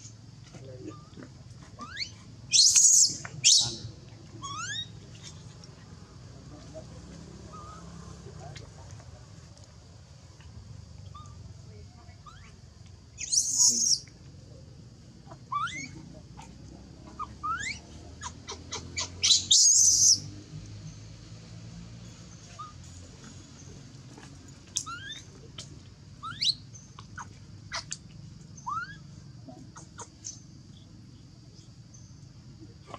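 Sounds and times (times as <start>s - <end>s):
baby monkey screaming: 1.8s - 3.8s, 4.4s - 5.3s, 12.2s - 12.6s, 13.2s - 14.0s, 15.3s - 16.0s, 17.1s - 20.2s, 24.8s - 25.3s, 26.2s - 26.6s, 27.2s - 28.0s, 28.6s - 29.1s
baby monkey squeaking: 1.8s - 3.8s, 4.4s - 5.4s, 12.2s - 12.6s, 13.2s - 14.0s, 15.3s - 16.0s, 17.1s - 20.2s, 22.6s - 22.8s, 24.8s - 25.3s, 26.2s - 28.0s, 28.6s - 29.1s.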